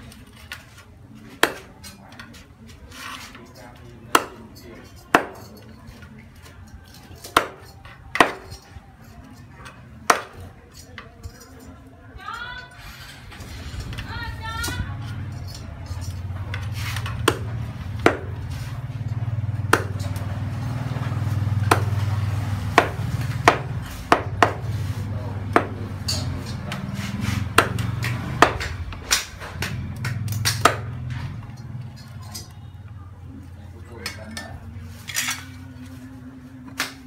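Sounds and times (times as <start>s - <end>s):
cleaver chopping on wooden block: 1.4s - 1.7s, 4.1s - 4.4s, 5.1s - 5.4s, 7.3s - 8.5s, 10.1s - 10.4s, 17.2s - 18.3s, 19.6s - 20.2s, 21.6s - 22.1s, 22.7s - 24.6s, 25.5s - 25.8s, 27.5s - 31.0s.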